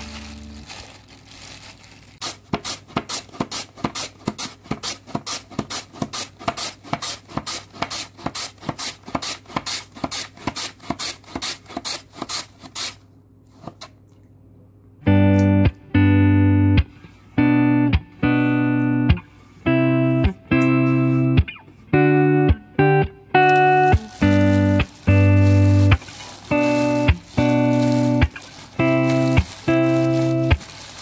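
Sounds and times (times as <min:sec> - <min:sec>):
guitar music: 0:00.0 - 0:00.8, 0:15.0 - 0:31.0.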